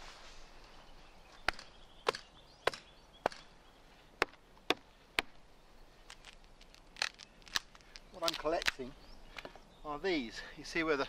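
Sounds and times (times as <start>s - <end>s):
axe chopping wooden stump: 1.4s - 3.5s, 4.2s - 5.4s.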